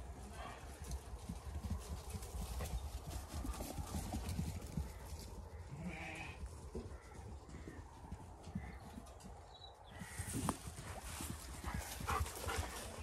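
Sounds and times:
hooves rustling on grass: 0:00.0 - 0:13.0
sheep bleating: 0:05.7 - 0:06.4.

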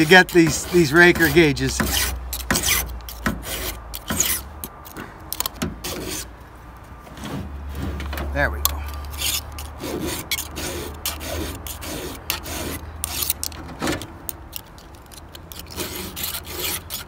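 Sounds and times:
hand file rasping on metal: 0:00.0 - 0:04.5, 0:05.8 - 0:06.3, 0:08.9 - 0:13.5, 0:15.5 - 0:17.0.

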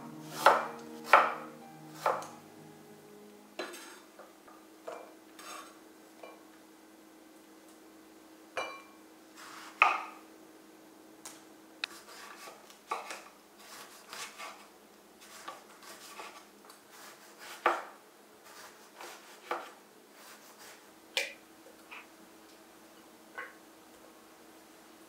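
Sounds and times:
knife cutting on wooden board: 0:15.2 - 0:20.8.

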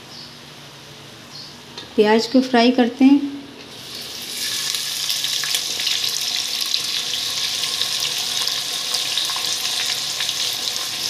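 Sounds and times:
onions sizzling in hot fat: 0:03.7 - 0:11.0.

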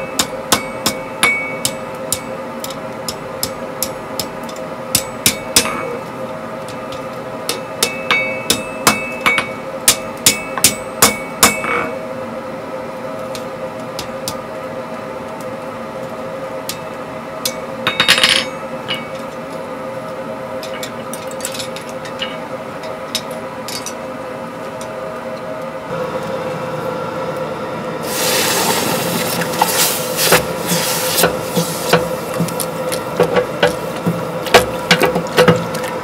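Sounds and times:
hammer ringing on anvil: 0:00.0 - 0:02.3, 0:07.5 - 0:11.9, 0:17.4 - 0:19.2
steady hum: 0:00.0 - 0:36.0.

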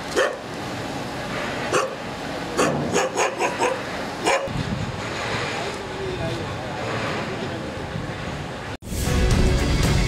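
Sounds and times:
steady background noise: 0:00.0 - 0:08.8
dog barking: 0:00.2 - 0:00.4, 0:01.7 - 0:02.0, 0:02.6 - 0:04.6.

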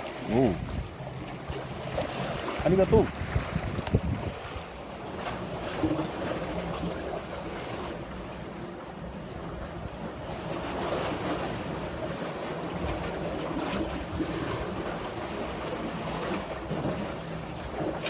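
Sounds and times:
seawater splashing between rocks: 0:00.0 - 0:08.1.

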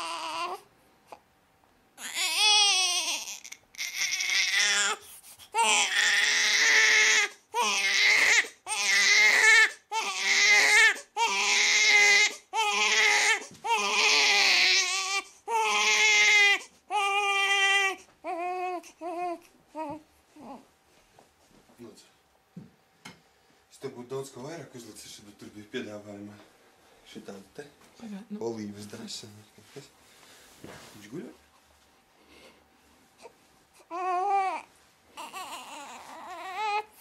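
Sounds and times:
newborn baby crying: 0:00.0 - 0:01.2, 0:02.0 - 0:20.7, 0:33.2 - 0:37.0.

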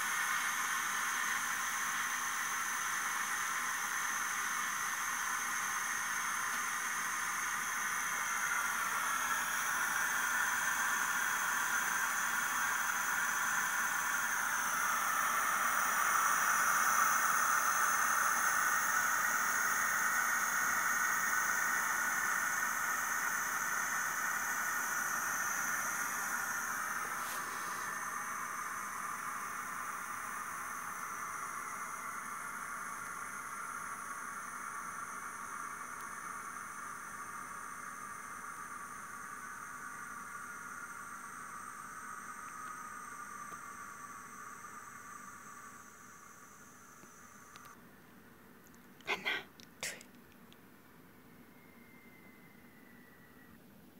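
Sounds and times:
rice cooker venting steam: 0:00.0 - 0:50.0, 0:51.4 - 0:53.9
faint click: 0:47.0 - 0:47.8.

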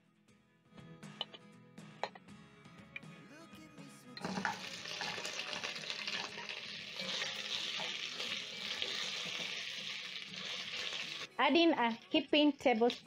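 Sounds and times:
meat sizzling in hot oil: 0:04.2 - 0:11.3, 0:11.9 - 0:13.0.

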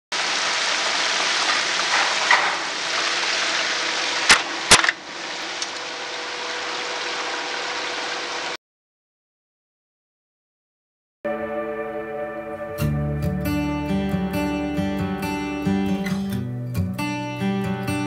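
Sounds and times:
deep fryer hissing: 0:00.1 - 0:08.6.

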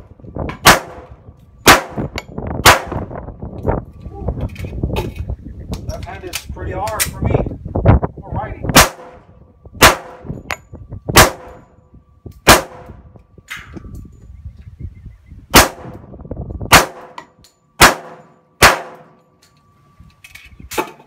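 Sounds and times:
pistol shots: 0:00.6 - 0:03.1, 0:08.7 - 0:09.2, 0:09.8 - 0:10.3, 0:11.2 - 0:11.6, 0:12.5 - 0:13.0, 0:15.5 - 0:16.0, 0:16.7 - 0:17.2, 0:17.8 - 0:19.2.

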